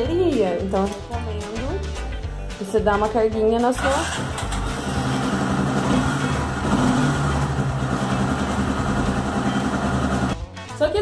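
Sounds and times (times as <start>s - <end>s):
motorcycle engine idling: 4.0s - 10.4s.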